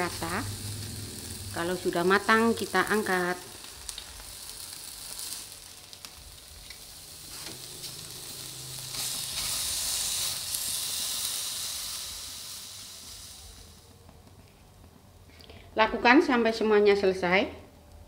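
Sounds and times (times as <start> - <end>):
skewers sizzling on grill: 0.0 - 14.4.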